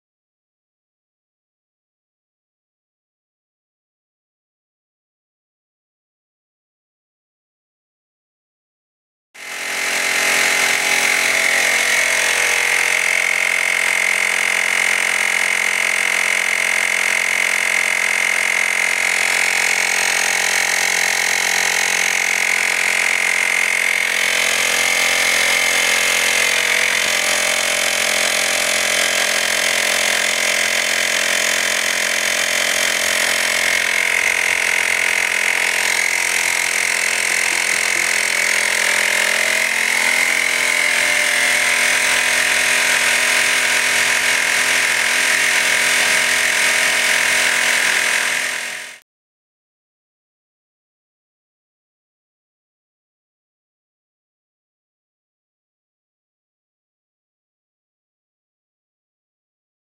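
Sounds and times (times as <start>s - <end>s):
tire inflator compressor whining: 9.4s - 49.0s.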